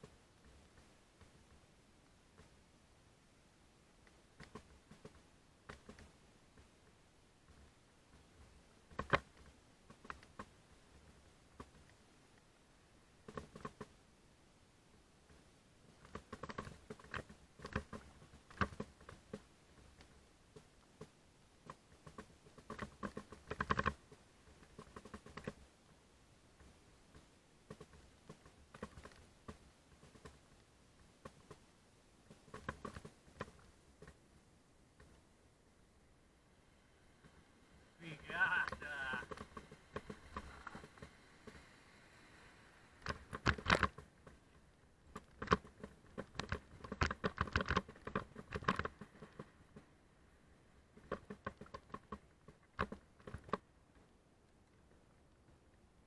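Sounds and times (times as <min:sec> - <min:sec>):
mountain bike rattling on rocks: 0:45.1 - 0:49.9.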